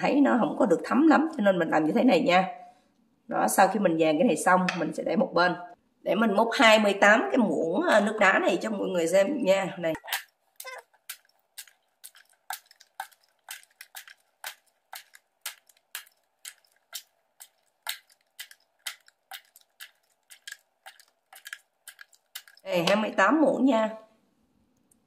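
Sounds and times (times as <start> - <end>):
spoon scooping ice clinking: 10.0 - 22.7.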